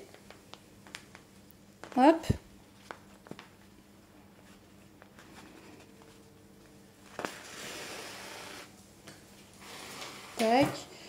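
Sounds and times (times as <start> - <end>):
yarn pulled through fabric hissing: 7.2 - 8.8.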